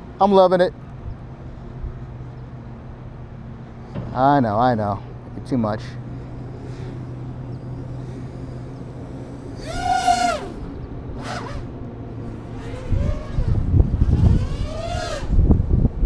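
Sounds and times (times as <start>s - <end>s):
wind rumbling on microphone: 0.9s - 16.0s
quadcopter propellers whining: 4.6s - 16.0s.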